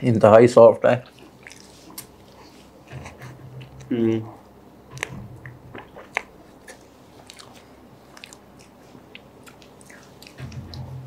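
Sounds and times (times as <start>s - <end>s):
wet chewing and lip smacks: 1.0s - 2.6s, 4.9s - 10.9s.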